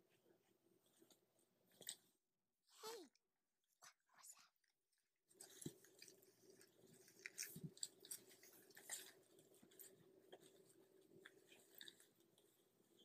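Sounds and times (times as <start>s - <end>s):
puppies scrabbling and nibbling: 0.0s - 2.2s, 5.3s - 13.0s
faint steady hum: 5.3s - 13.0s.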